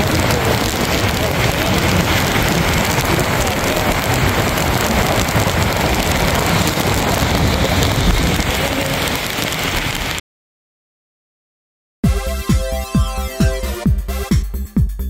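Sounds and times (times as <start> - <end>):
heavy rain on a car: 0.0 - 10.2.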